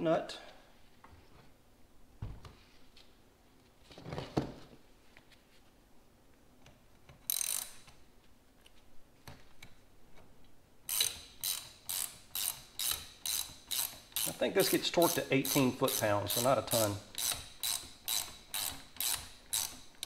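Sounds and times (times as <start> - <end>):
ratchet wrench clicking: 7.3 - 8.0, 10.9 - 20.0.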